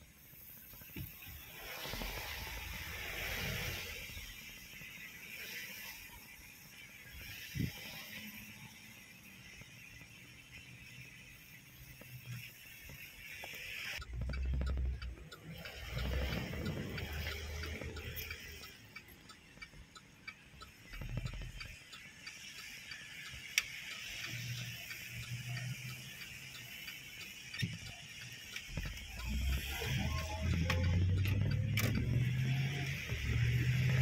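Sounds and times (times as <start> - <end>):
car and tyre rumble: 0.0 - 34.0
steady hiss of wet road: 0.0 - 34.0
light ticks: 11.8 - 34.0.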